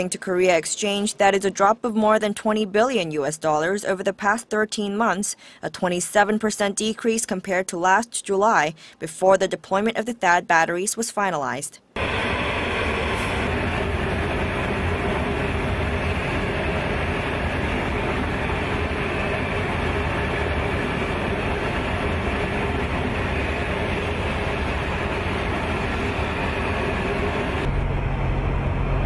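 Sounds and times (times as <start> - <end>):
heavy trucks rumbling: 12.0 - 29.0.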